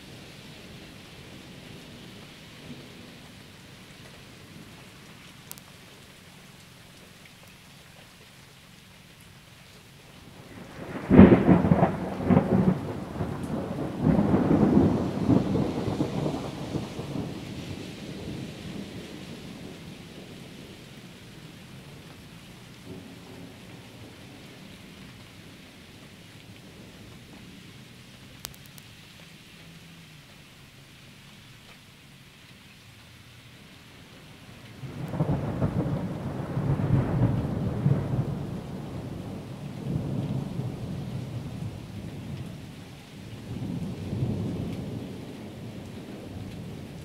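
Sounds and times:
steady rain: 0.0 - 47.0
thunder clap and rumbles: 10.4 - 20.8, 34.7 - 42.6, 43.4 - 47.0.

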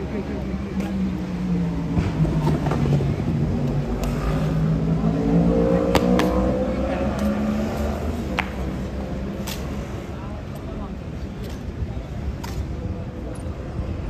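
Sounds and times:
vehicle engine speeding up: 1.1 - 8.3.

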